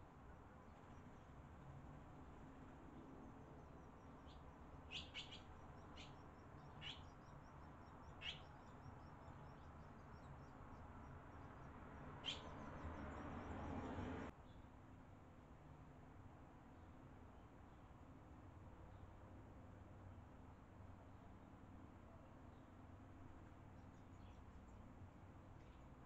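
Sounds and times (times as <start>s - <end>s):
swallows chirping: 4.2s - 10.5s, 12.2s - 14.0s.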